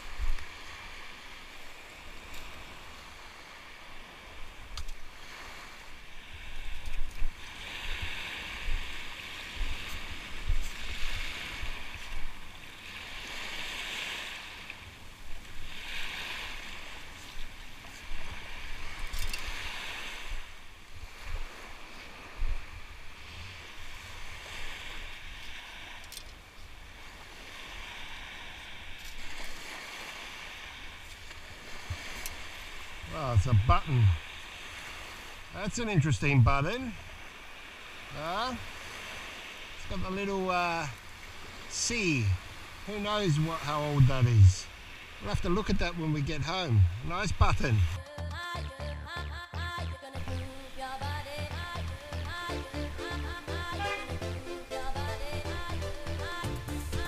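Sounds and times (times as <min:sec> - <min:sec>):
surf washing over sand: 0:00.0 - 0:48.2, 0:50.5 - 0:57.0
wind rumble on microphone: 0:06.2 - 0:12.6, 0:15.2 - 0:26.0.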